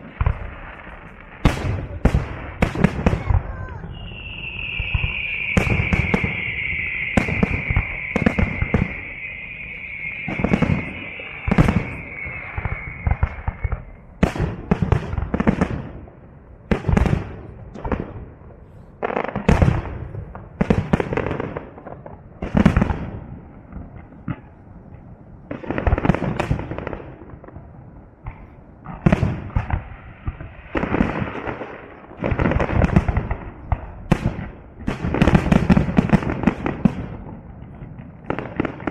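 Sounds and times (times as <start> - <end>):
fireworks bursting and crackling: 0.0 - 38.9
high whistle-like tone: 3.7 - 14.2.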